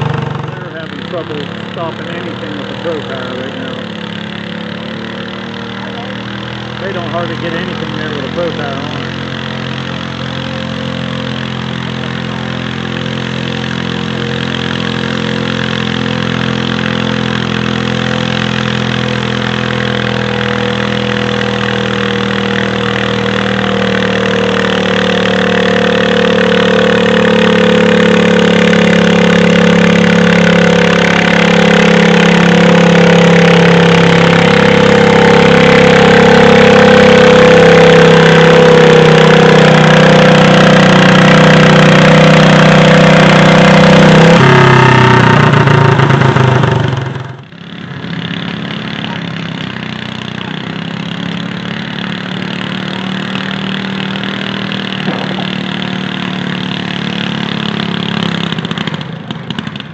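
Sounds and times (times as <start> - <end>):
tractor engine running hard: 0.0 - 59.9.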